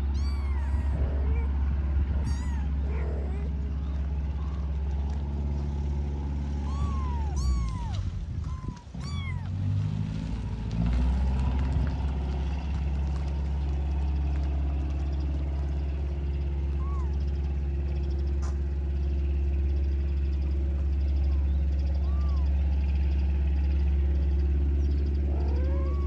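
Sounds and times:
kittens mewing: 0.0s - 4.8s, 6.6s - 9.6s, 16.8s - 17.2s, 21.4s - 22.6s, 25.2s - 26.0s
low engine hum: 0.0s - 26.0s.

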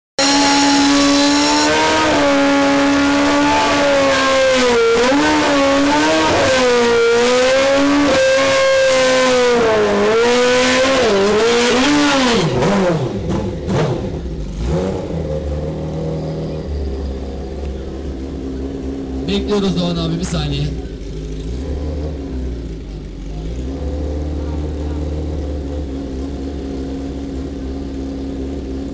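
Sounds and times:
motorcycle engine revving: 0.2s - 28.9s.

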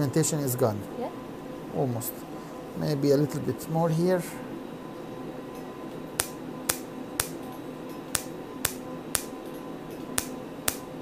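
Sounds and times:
steady hum: 0.0s - 11.0s
laser pulses snapping: 6.2s - 7.4s, 8.1s - 9.3s, 10.2s - 10.9s.

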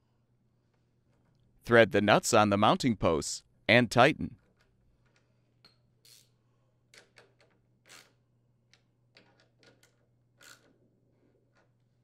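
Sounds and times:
socket ratchet clicking: 10.4s - 10.7s.

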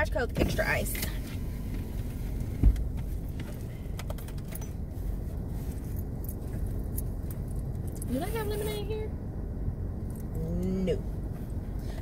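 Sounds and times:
car engine rumble inside cabin: 0.0s - 12.0s
dull thump: 2.6s - 3.5s.

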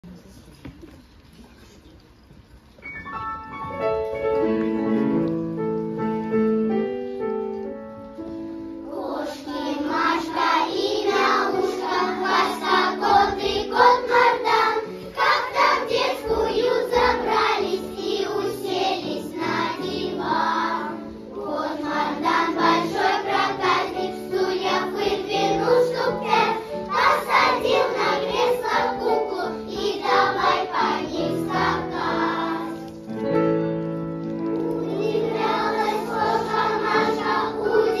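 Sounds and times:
instrumental accompaniment: 2.8s - 38.0s
girls choir singing: 8.8s - 32.9s, 34.7s - 38.0s.

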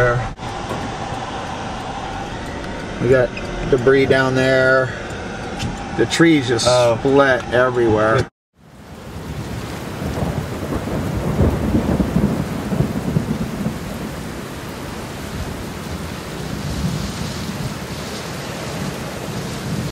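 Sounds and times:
steady rain: 0.0s - 7.6s, 8.6s - 19.9s
low rolling thunder: 8.7s - 19.9s.

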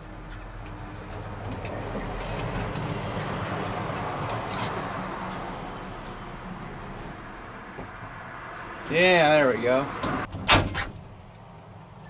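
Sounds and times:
vehicle passing by: 0.8s - 10.3s.

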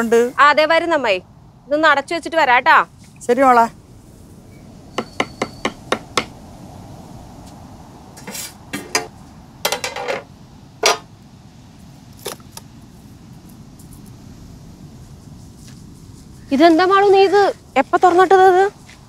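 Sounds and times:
metal lid clanking: 8.2s - 9.1s, 9.7s - 11.1s
wooden spatula tapping metal pot: 10.8s - 11.0s.

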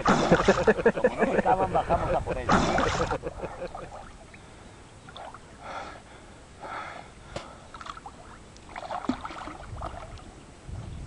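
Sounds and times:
water splashing and churning: 0.0s - 0.9s, 2.4s - 5.8s, 6.6s - 10.4s.

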